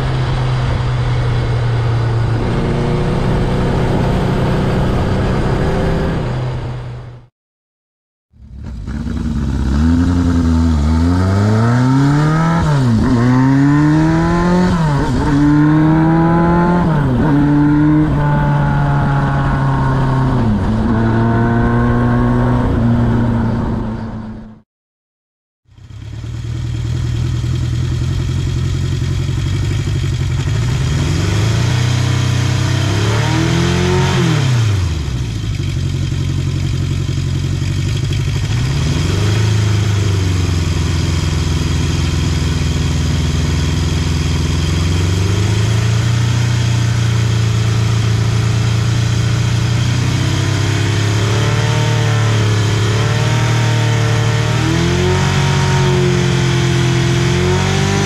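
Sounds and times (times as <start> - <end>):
motorcycle engine idling with revs: 8.3 - 16.9, 25.7 - 58.0.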